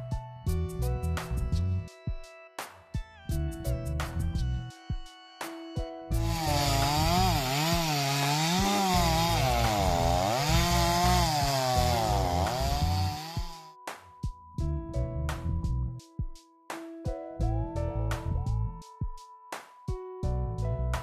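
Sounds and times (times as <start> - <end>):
background music with a beat: 0.0 - 9.3, 10.2 - 21.0
chainsaw cutting at high revs: 6.2 - 13.7.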